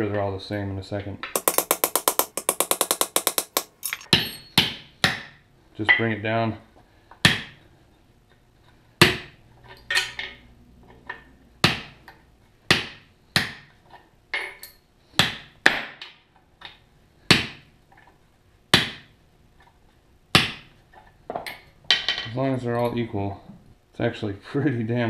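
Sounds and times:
hammer striking steel rod: 0:01.4 - 0:04.3
light metal clatter: 0:03.5 - 0:04.6.

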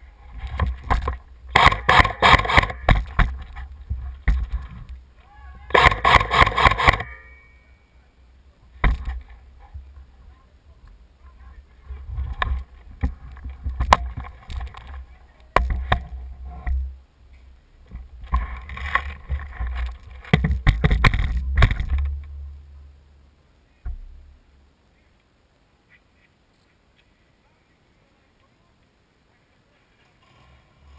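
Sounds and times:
camera movement rumble: 0:00.0 - 0:07.2, 0:08.6 - 0:23.0.

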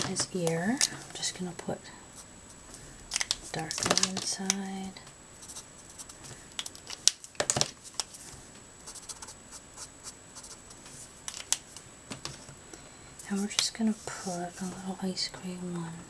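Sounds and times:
marker handling clicks and knocks: 0:03.1 - 0:04.6, 0:06.6 - 0:08.1, 0:11.3 - 0:12.5
marker nib scratching on card: 0:05.4 - 0:06.2, 0:08.9 - 0:10.8.

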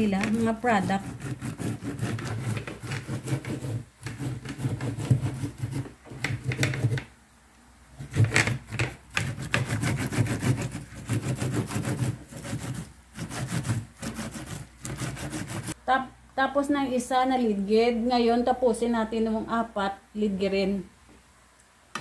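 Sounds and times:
corn cob scraped on metal grater: 0:00.0 - 0:07.0, 0:08.0 - 0:15.8.

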